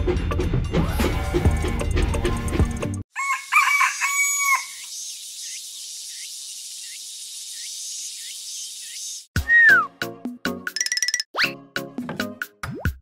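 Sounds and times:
rooster crowing: 0:03.1 - 0:04.8.

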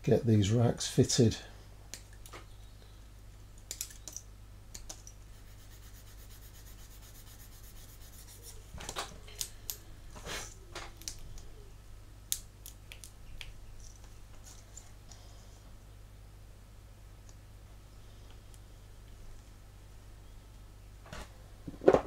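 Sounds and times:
low steady hum: 0:00.0 - 0:22.0
fingers rubbing parts: 0:04.8 - 0:08.7.

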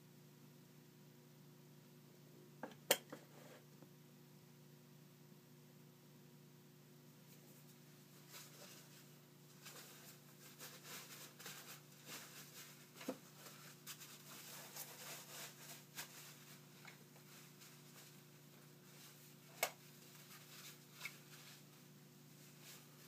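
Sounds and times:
gloves rustling and scraping tools: 0:07.3 - 0:23.0.

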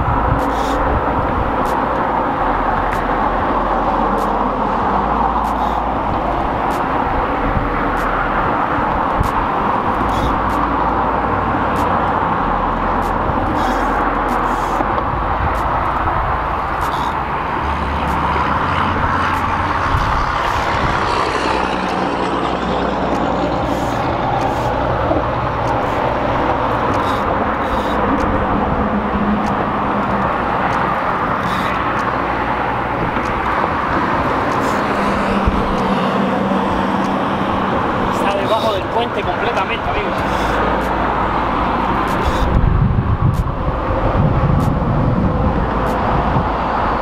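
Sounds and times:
loud rushing noise: 0:00.0 - 0:47.0
faint sharp ticks: 0:04.2 - 0:04.4.

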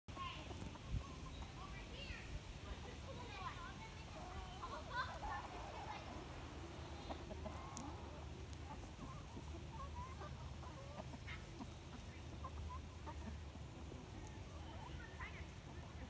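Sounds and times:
chickens clucking: 0:00.1 - 0:16.0.

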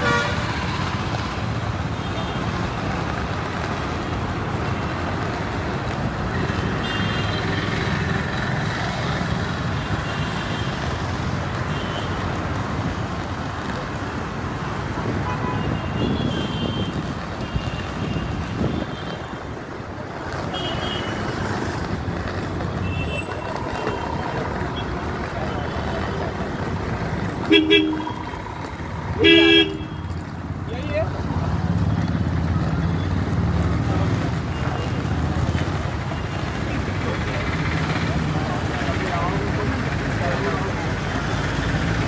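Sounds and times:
road traffic: 0:00.0 - 0:42.0
car horn toots: 0:27.5 - 0:28.3, 0:29.2 - 0:30.0.

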